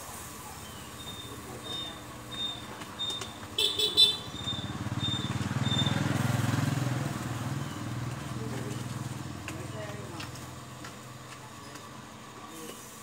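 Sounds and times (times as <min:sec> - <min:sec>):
motorbike engine passing: 0:01.1 - 0:10.8.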